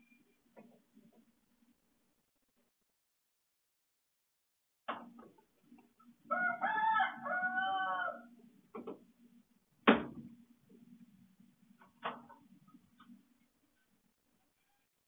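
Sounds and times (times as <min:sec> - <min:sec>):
rooster crowing: 0:06.3 - 0:08.3.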